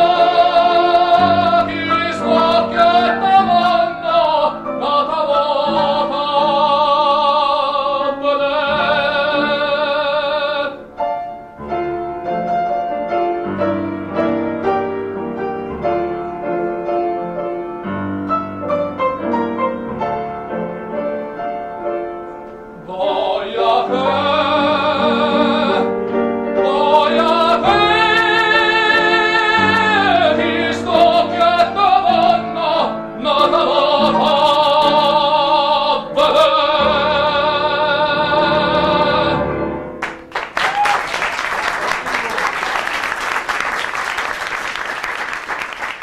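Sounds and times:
operatic tenor singing: 0.0s - 10.9s, 22.8s - 39.8s
grand piano: 0.0s - 46.0s.

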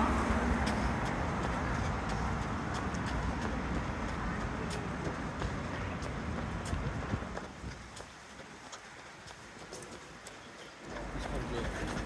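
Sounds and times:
footsteps on pavement: 0.0s - 12.0s
traffic hum: 0.0s - 12.0s.

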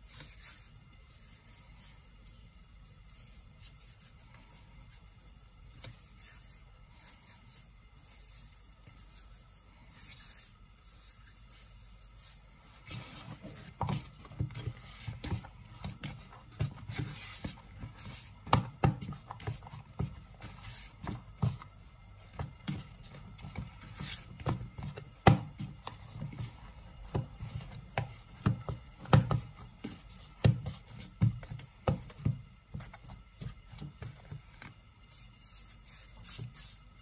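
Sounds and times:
kneading dough thuds and squelches: 0.0s - 37.0s.

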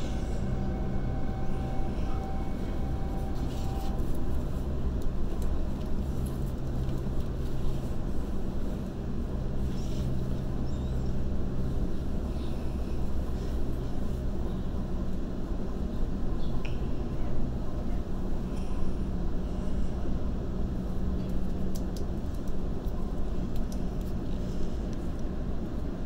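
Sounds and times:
electric train running: 0.0s - 5.9s.

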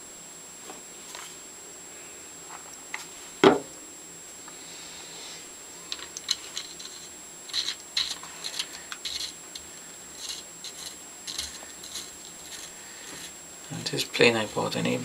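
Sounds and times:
metal clicks and scrapes: 5.9s - 12.7s.

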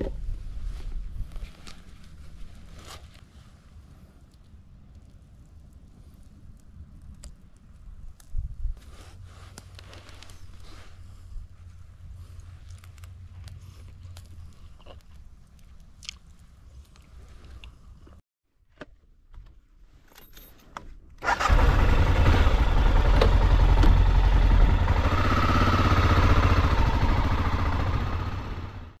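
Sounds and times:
small clicks and scrapes: 5.8s - 11.0s, 12.3s - 18.2s
motorcycle engine running: 21.3s - 29.0s.

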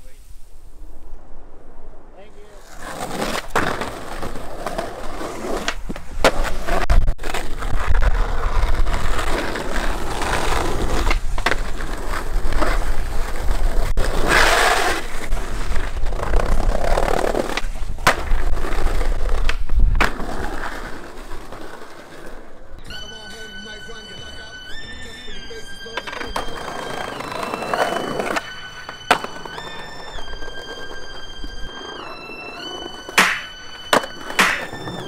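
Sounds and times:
skateboard wheels rolling on asphalt: 0.4s - 22.8s, 23.4s - 35.0s
skateboard clacking on pavement: 8.9s - 13.0s, 15.8s - 22.4s, 32.6s - 35.0s.

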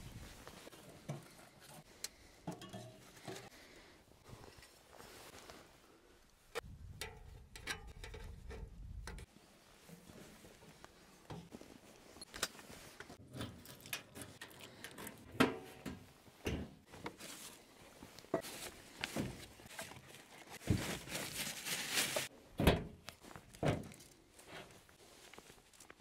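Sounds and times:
rustling: 16.2s - 22.3s.

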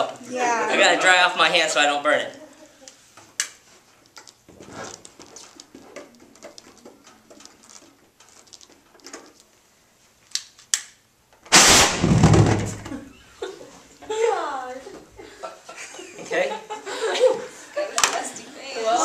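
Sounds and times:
faint clicks and rustles: 2.3s - 11.4s
vapour igniting with loud whoosh: 11.5s - 12.8s.

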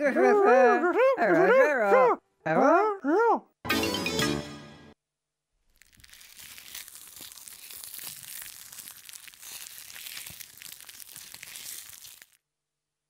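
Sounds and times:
crackling fizzing hiss: 5.8s - 12.4s.

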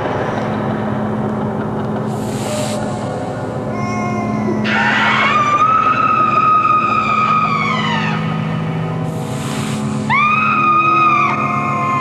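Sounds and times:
steady low hum: 0.0s - 12.0s
spooky wailing cries: 3.6s - 9.0s, 10.0s - 12.0s
short hiss: 9.1s - 10.1s.

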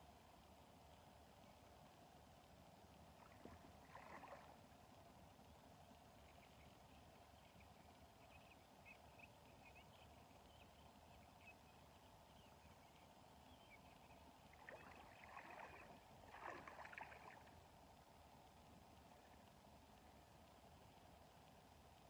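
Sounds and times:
water splashing: 3.2s - 4.6s, 14.5s - 17.6s.

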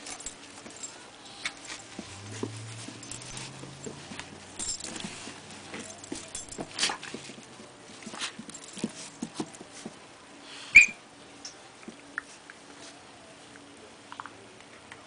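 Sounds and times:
dogs scuffling: 0.0s - 10.0s.

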